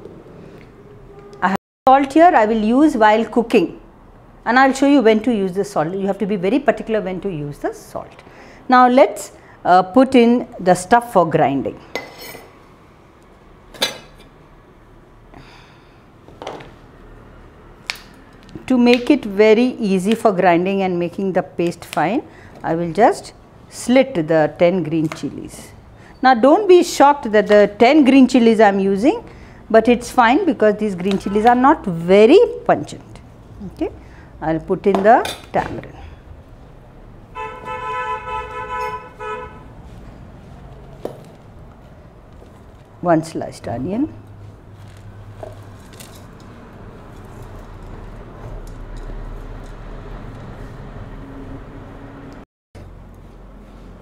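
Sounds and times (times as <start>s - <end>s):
vehicle horn honking: 37.3s - 39.8s.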